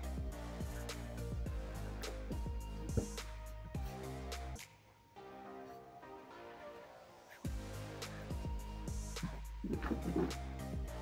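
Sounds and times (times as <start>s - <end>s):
background music with sustained chords: 0.0s - 11.0s.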